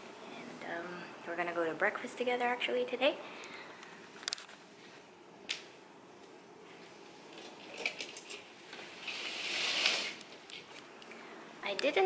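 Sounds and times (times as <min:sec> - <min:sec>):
curtains swishing open: 0:08.8 - 0:10.2
curtain rail clicks: 0:09.0 - 0:10.3.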